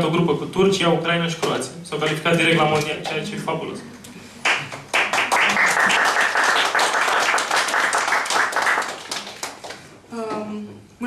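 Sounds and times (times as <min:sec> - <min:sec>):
audience applauding: 0:04.4 - 0:09.9.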